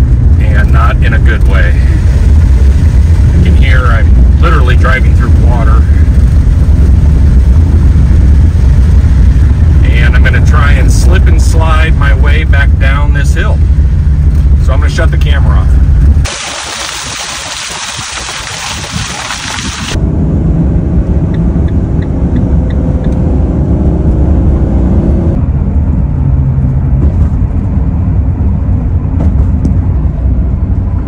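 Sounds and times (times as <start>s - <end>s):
van driving low rumble: 0.0s - 31.0s.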